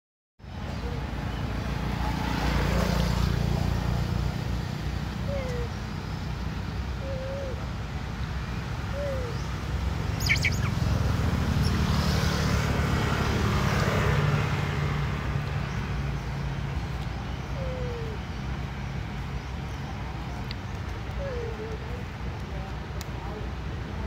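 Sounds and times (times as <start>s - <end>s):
low engine-like rumble: 3.6s - 13.5s, 15.1s - 24.0s
falling bird chirps: 10.1s - 10.9s.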